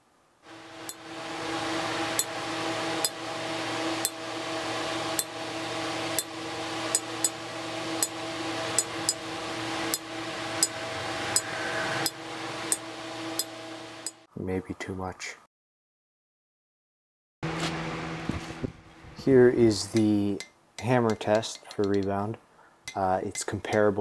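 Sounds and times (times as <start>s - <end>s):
fan humming: 0.4s - 14.3s, 17.4s - 22.3s.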